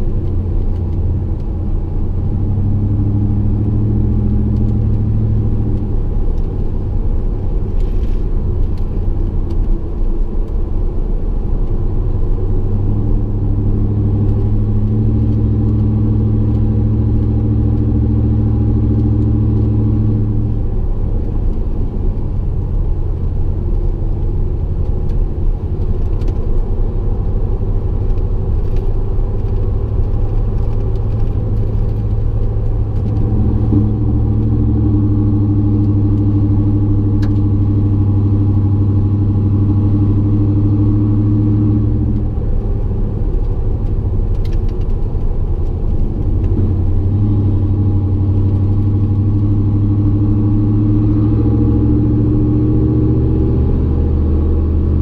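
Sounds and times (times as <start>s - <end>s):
tyre and road noise: 0.0s - 55.0s
exhaust low drone: 27.4s - 55.0s.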